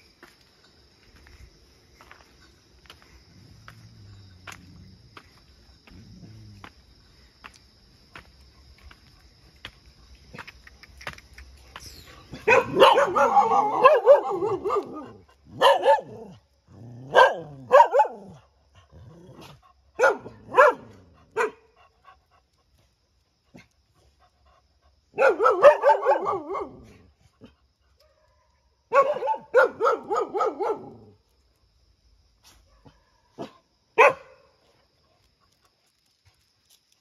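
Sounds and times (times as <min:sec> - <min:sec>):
dogs barking: 0:12.3 - 0:16.3, 0:17.0 - 0:18.4, 0:20.0 - 0:21.7, 0:25.1 - 0:26.8, 0:28.9 - 0:31.0, 0:32.7 - 0:34.4.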